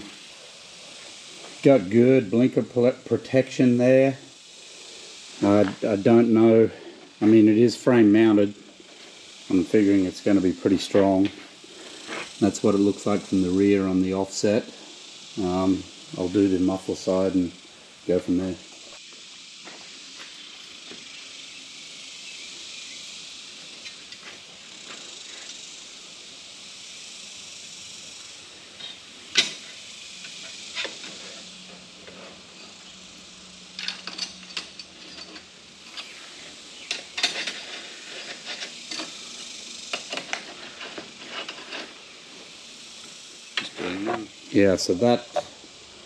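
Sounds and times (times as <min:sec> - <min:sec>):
steady background hiss: 0:00.0 - 0:46.0
metal bolts and washers clinking: 0:28.8 - 0:31.2, 0:33.7 - 0:36.2, 0:36.8 - 0:42.0.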